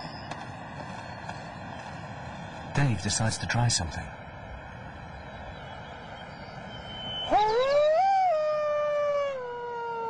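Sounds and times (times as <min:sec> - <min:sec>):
man howling like a wolf: 0:07.3 - 0:10.0.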